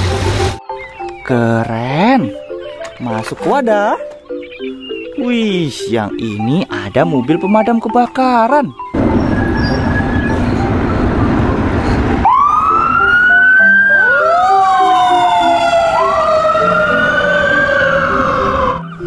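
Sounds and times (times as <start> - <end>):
sirens wailing: 8.8 - 19.0
fire engine rushing rumble: 8.9 - 19.0.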